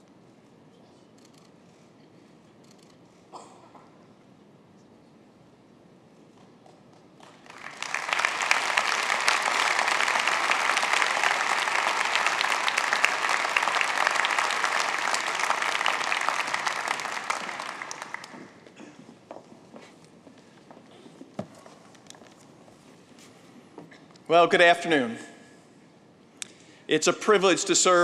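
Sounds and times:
audience applauding: 0:07.2 - 0:18.8.

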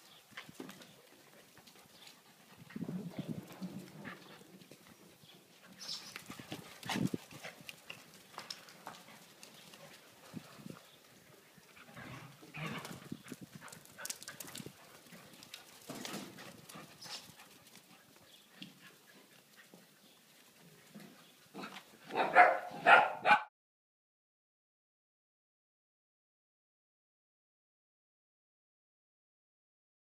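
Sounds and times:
paws pattering on concrete: 0:00.0 - 0:23.4.

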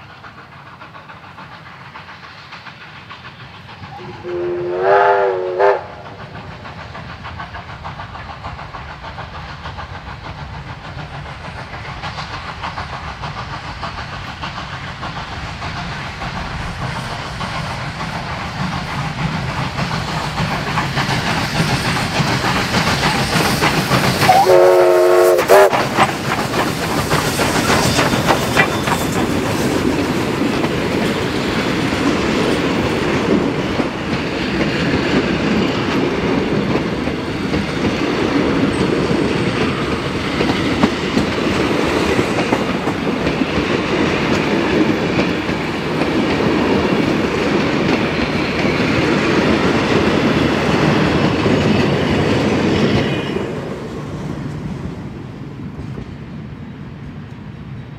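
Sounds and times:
steam locomotives passing: 0:00.0 - 0:57.9
train wheels clicking on rail joints: 0:00.0 - 0:57.9
steam whistle: 0:04.0 - 0:06.1, 0:24.2 - 0:25.8.

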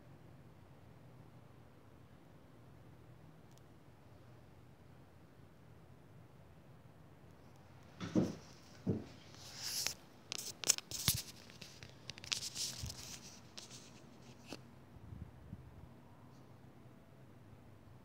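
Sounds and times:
sharp clicks and knocks: 0:08.0 - 0:12.8
camera handling rubbing and scraping: 0:08.0 - 0:14.6.

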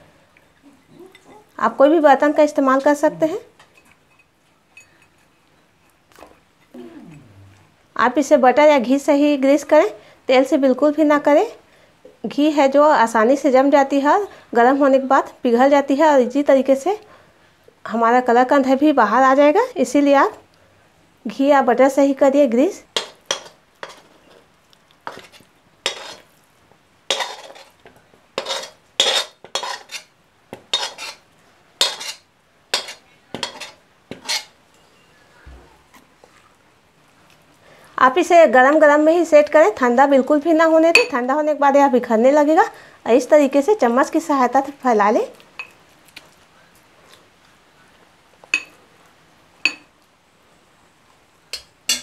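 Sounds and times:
metal spatula clinking on glass bowl: 0:03.7 - 0:05.4, 0:49.6 - 0:49.9, 0:51.5 - 0:52.0
metal spoon scraping and clinking: 0:03.8 - 0:06.0, 0:23.0 - 0:24.4, 0:25.1 - 0:26.3, 0:27.1 - 0:27.8, 0:28.4 - 0:30.1, 0:30.7 - 0:31.2, 0:31.8 - 0:35.1, 0:51.6 - 0:52.0.

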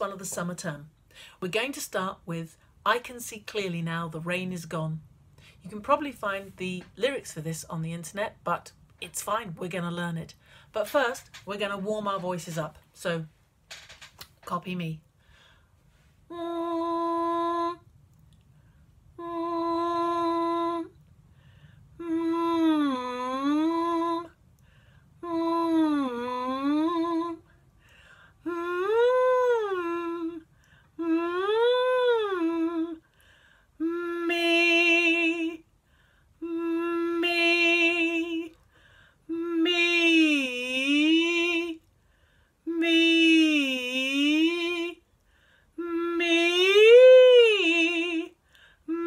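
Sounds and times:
woman singing vocal exercises: 0:05.6 - 0:13.4, 0:16.2 - 0:17.9, 0:19.1 - 0:21.0, 0:21.9 - 0:24.4, 0:25.2 - 0:33.1, 0:33.7 - 0:35.7, 0:36.4 - 0:41.9, 0:42.6 - 0:45.1, 0:45.7 - 0:49.0.

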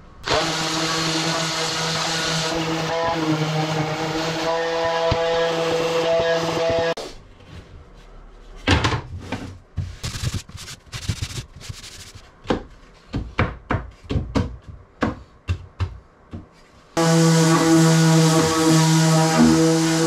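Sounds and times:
wood rubbing and scraping: 0:10.0 - 0:12.3.

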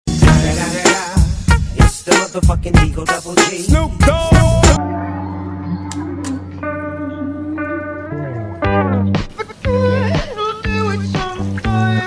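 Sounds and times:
instrumental background music: 0:00.1 - 0:12.0.

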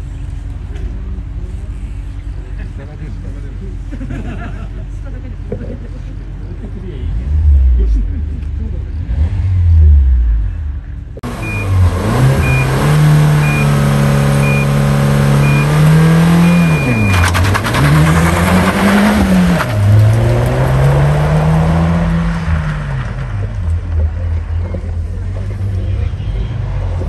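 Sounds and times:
rally car engine revving: 0:07.0 - 0:27.0
start clock beeps: 0:11.2 - 0:17.3.

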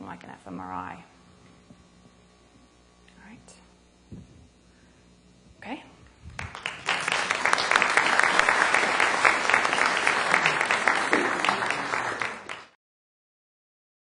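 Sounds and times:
audience applauding: 0:06.4 - 0:12.8.

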